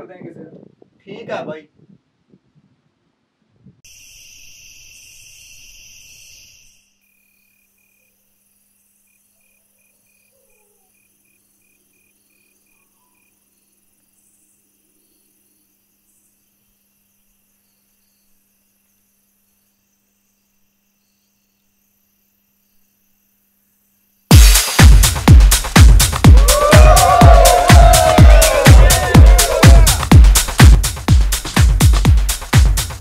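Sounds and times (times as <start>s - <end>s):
crickets chirping: 3.8s - 25.9s
loud high insect drone: 3.9s - 9.2s.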